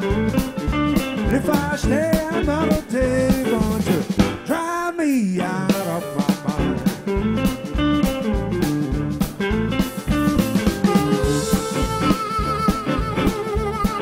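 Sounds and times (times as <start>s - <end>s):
live blues band playing: 0.0s - 14.0s
lead guitar pitch bends: 5.6s - 14.0s.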